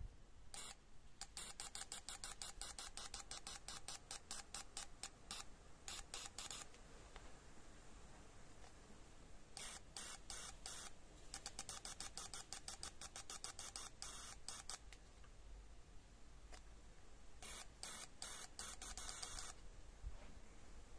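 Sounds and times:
fuel injector hissing bursts: 9.6 - 14.8, 17.4 - 19.6.

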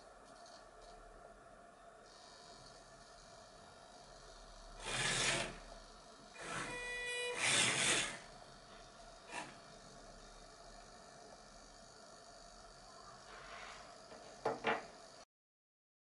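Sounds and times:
motor whine: 2.0 - 15.2
servo motors grinding whirr: 4.7 - 8.4, 9.2 - 10.0.

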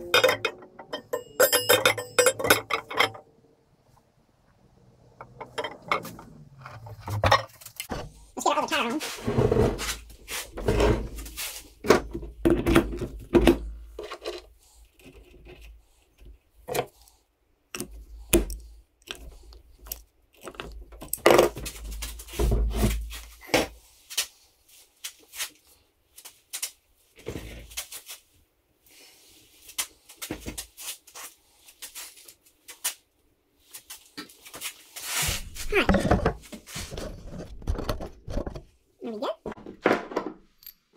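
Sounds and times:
metal clanks and scrapes: 0.0 - 3.3, 5.2 - 8.2, 9.0 - 12.8.

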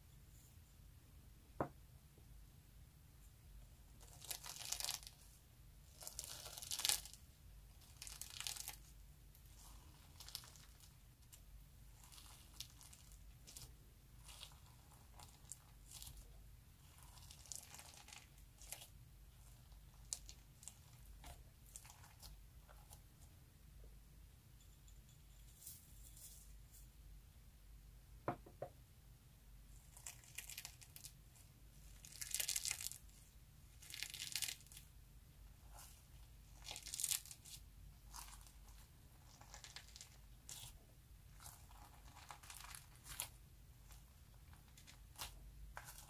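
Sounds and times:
glitter slime crackling: 4.0 - 23.1, 31.8 - 34.9, 35.6 - 46.0.

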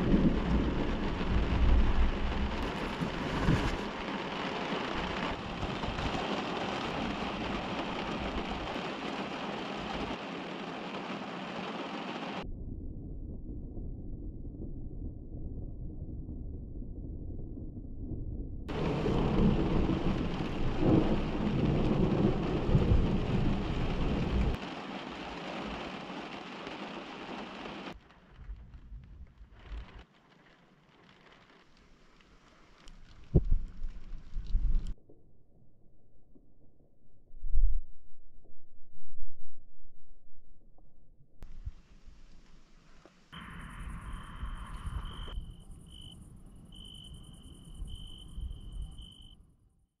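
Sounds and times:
low rumble: 0.0 - 4.2, 12.4 - 24.6, 32.9 - 42.8, 43.4 - 49.1
heavy rain hissing: 0.0 - 12.4, 18.7 - 28.8, 41.5 - 45.4
thunder rumbling: 0.0 - 30.3, 43.4 - 49.1
crickets chirping: 43.4 - 49.4.

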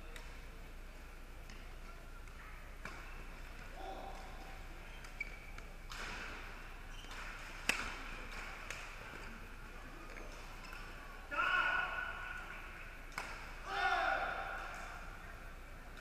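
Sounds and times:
sports hall background noise: 0.0 - 16.0
rackets smacking shuttlecock: 1.4 - 11.0, 13.0 - 15.0.

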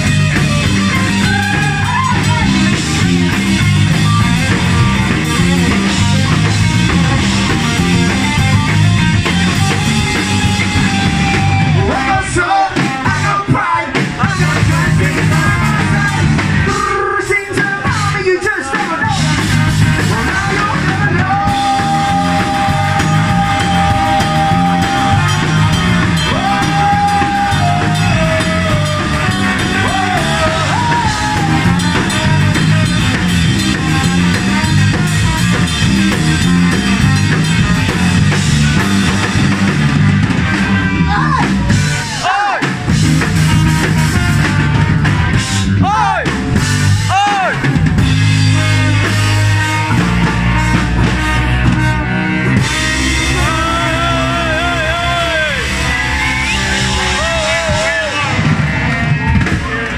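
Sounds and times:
live ska punk band playing: 0.0 - 59.9
person singing: 10.5 - 35.6, 52.7 - 55.9.

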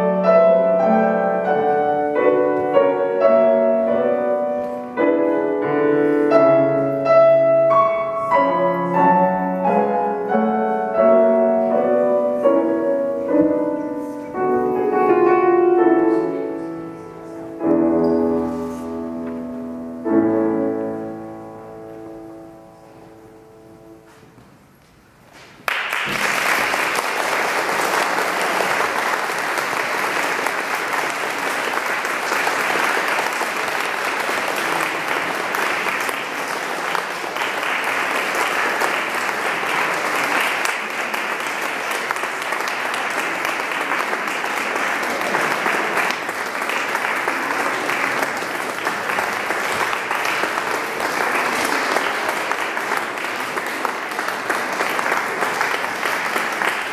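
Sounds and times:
audience applauding: 25.4 - 56.9.

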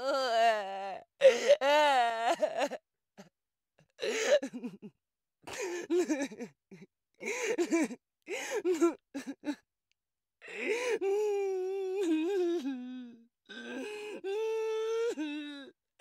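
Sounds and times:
woman crying and sobbing: 0.0 - 2.8, 4.0 - 4.9, 5.5 - 9.6.

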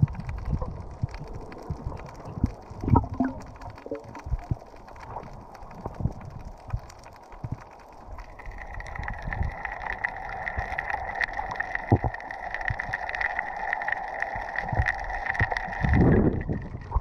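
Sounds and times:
water gurgle: 0.0 - 17.0
underwater thumps and knocks: 1.7 - 4.6.

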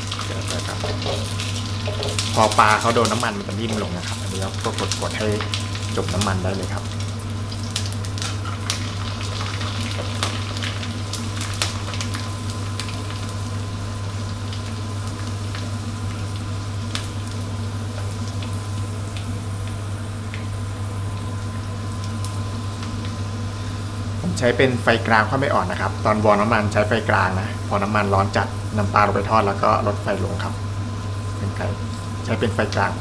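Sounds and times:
oil crackling and popping: 0.0 - 23.5
fish deep-frying in oil: 0.0 - 33.0.

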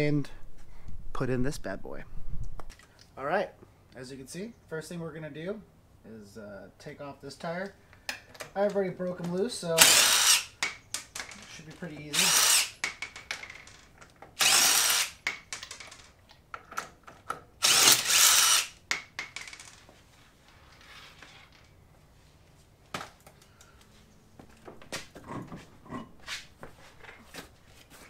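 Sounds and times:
impact wrench spinning: 9.8 - 16.0, 17.6 - 19.7.

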